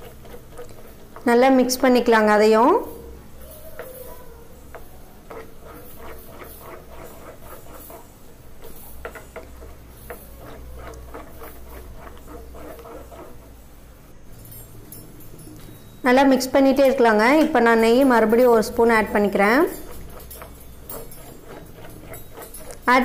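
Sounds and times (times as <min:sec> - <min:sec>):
wooden spatula scraping a pan: 0:00.0 - 0:02.2, 0:03.6 - 0:13.6, 0:17.5 - 0:23.0.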